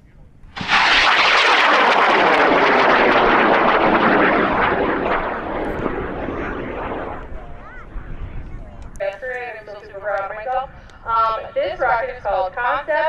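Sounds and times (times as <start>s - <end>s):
rocket motor roaring: 0.5s - 9.0s.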